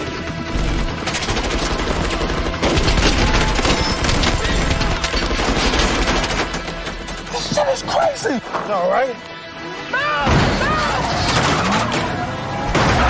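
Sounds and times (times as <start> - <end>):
rapid gunfire: 0.0 - 7.4.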